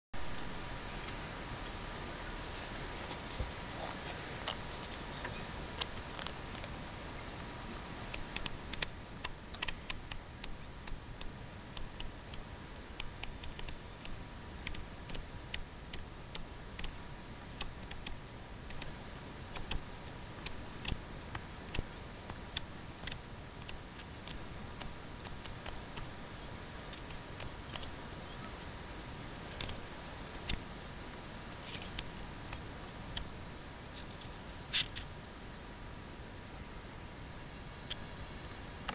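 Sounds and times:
steady hiss: 0:00.2 - 0:38.9
flipbook pages ticking: 0:05.7 - 0:06.7, 0:08.1 - 0:17.0, 0:17.6 - 0:26.2, 0:26.8 - 0:28.0, 0:29.5 - 0:30.6, 0:31.6 - 0:33.3.

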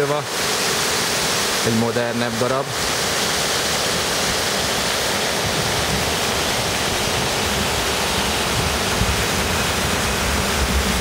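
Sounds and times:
fountain water splashing: 0:00.0 - 0:11.0.

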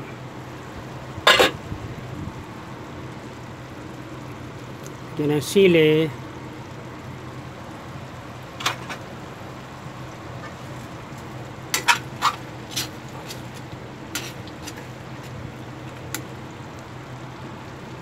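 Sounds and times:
steady low hum: 0:00.0 - 0:18.0
metal spatula scraping wok: 0:11.7 - 0:15.3.

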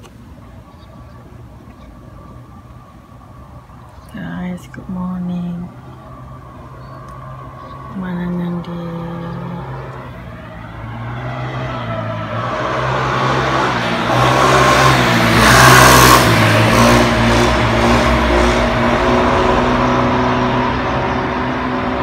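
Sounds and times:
vehicle passing by: 0:05.0 - 0:22.0.

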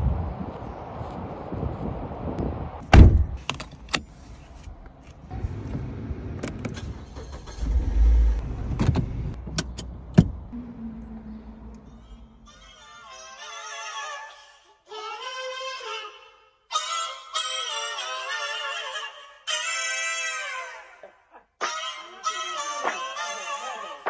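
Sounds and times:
car door shutting: 0:02.9 - 0:04.0, 0:07.5 - 0:10.4
car engine starting and idling: 0:02.9 - 0:12.7.

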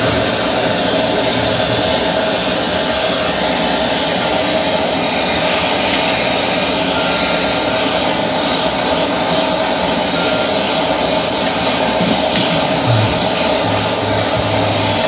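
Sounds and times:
gas torch flame roaring: 0:00.0 - 0:15.0.

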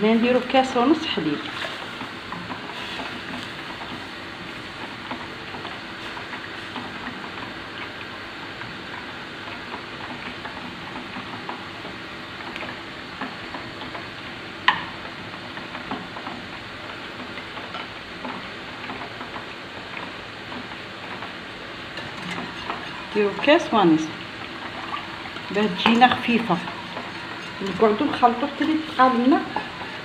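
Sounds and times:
frying sizzle: 0:00.0 - 0:30.0
wooden spoon scraping a saucepan: 0:22.0 - 0:23.8, 0:24.9 - 0:30.0.

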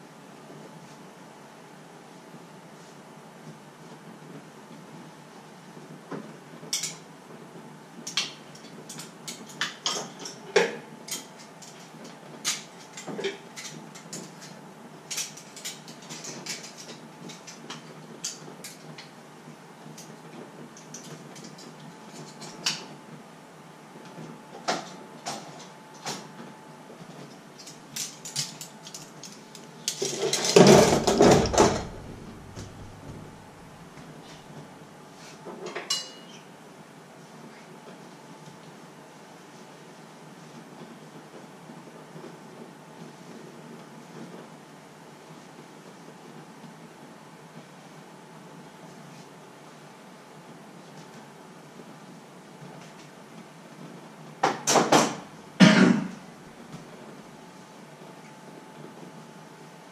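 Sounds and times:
close handling noise: 0:24.0 - 0:36.4
dishes and cutlery clinking: 0:35.6 - 0:36.4.

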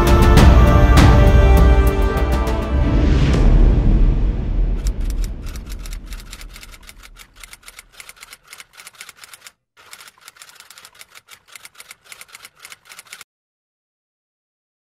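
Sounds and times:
low rumble: 0:02.7 - 0:07.4
keyboard typing clicks: 0:04.8 - 0:13.2.

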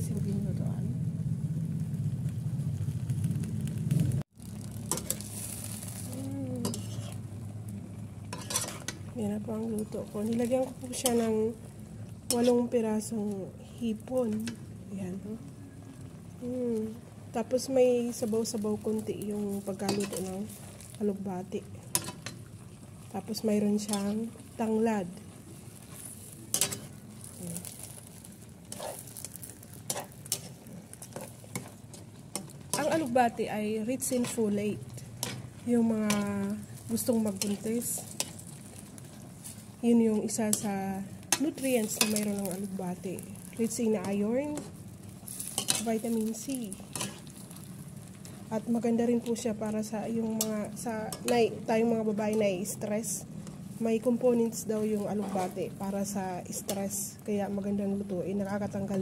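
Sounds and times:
food sizzling in a pan: 0:00.0 - 0:59.0
low steady simmer: 0:00.0 - 0:59.0
steady low hum: 0:00.0 - 0:59.0
spatula scraping a wok: 0:04.9 - 0:07.4, 0:08.2 - 0:09.1, 0:10.4 - 0:11.5, 0:12.3 - 0:12.8, 0:19.6 - 0:21.0, 0:21.9 - 0:22.4, 0:25.6 - 0:33.3, 0:34.0 - 0:42.4, 0:44.0 - 0:47.6, 0:55.0 - 0:55.8.

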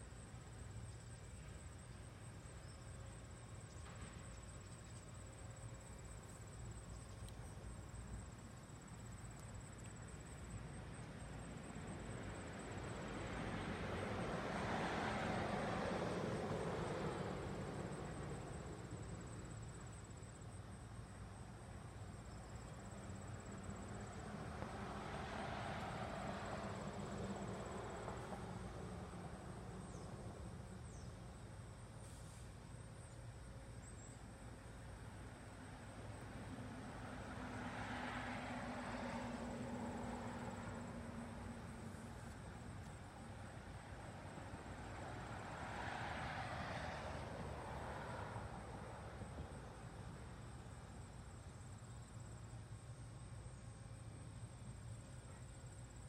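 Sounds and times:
high insect trill: 0:00.0 - 0:56.0
vehicles passing: 0:03.3 - 0:20.5, 0:21.6 - 0:31.0, 0:34.4 - 0:56.0.

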